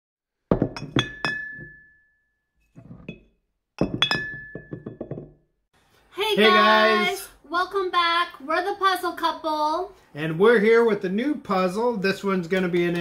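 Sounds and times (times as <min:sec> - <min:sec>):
sharp glass clinks: 0:00.7 - 0:02.2, 0:03.8 - 0:05.2.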